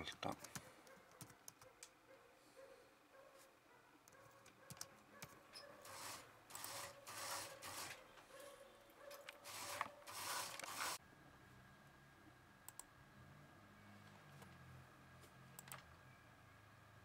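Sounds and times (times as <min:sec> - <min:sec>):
computer mouse clicks: 0:00.4 - 0:02.0, 0:04.0 - 0:05.7, 0:12.7 - 0:12.9, 0:15.6 - 0:15.8
rustling: 0:09.1 - 0:11.0
faint steady hum: 0:11.0 - 0:17.0.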